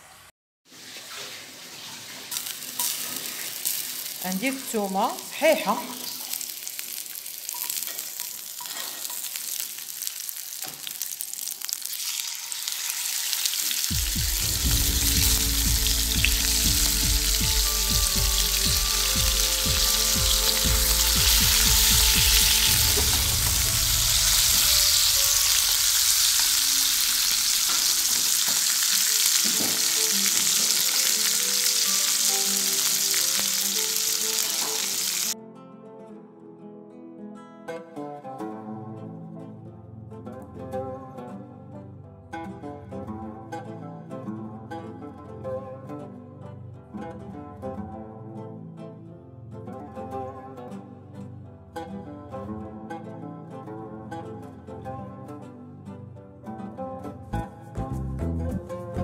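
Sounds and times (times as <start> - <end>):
steaks sizzling in a pan: 2.2 - 4.2, 6.0 - 35.4.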